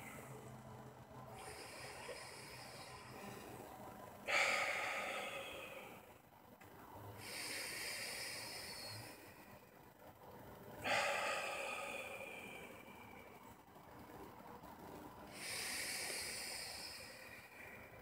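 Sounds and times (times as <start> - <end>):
man breathing deeply: 1.3 - 6.4, 7.2 - 9.8, 10.8 - 13.5, 15.3 - 18.0.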